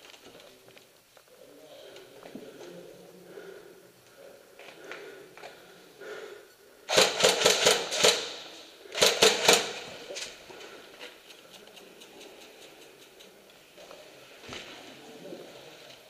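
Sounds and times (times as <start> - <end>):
airsoft guns firing: 6.9 - 10.0.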